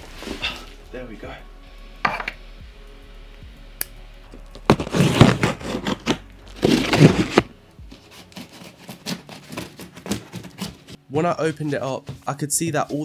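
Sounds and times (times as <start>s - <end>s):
packing tape tearing from cardboard: 4.3s - 11.0s.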